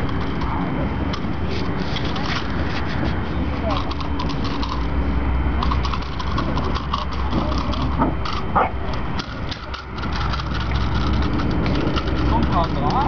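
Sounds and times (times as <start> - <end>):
low rumble: 0.0 - 13.0
puppy barking: 8.5 - 8.8.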